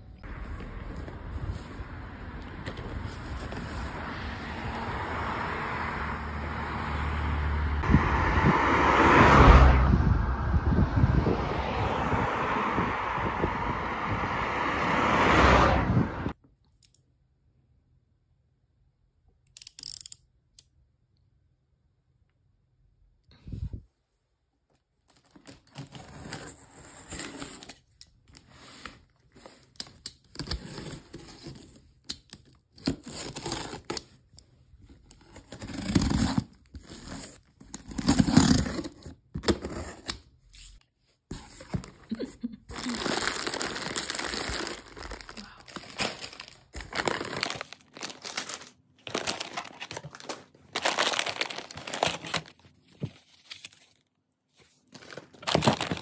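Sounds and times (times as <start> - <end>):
plastic wrappers crinkling: 42.2 - 52.6, 54.9 - 56.0
packing tape ripping: 42.7 - 52.5.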